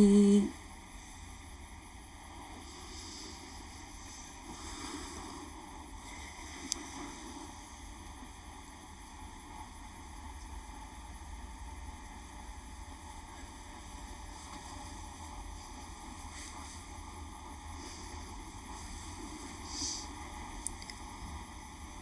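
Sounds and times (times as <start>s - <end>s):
faint hiss: 0.0s - 22.0s.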